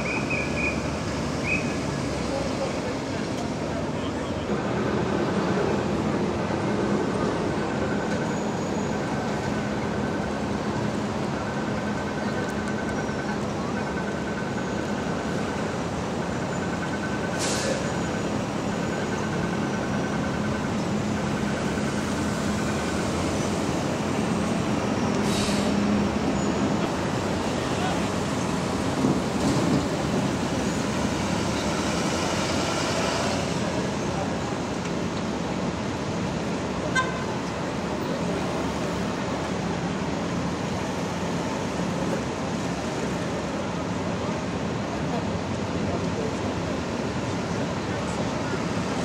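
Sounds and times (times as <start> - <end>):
city street traffic: 0.0 - 49.0
short hisses: 25.2 - 25.8.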